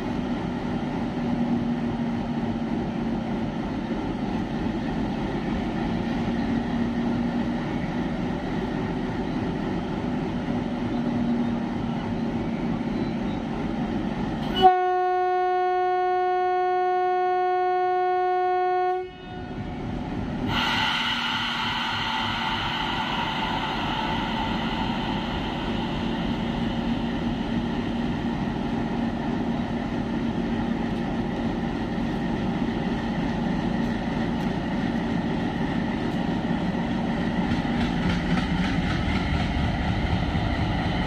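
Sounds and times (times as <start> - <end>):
locomotive horn blast: 14.4 - 19.6
locomotive engine rumbling: 19.4 - 41.0.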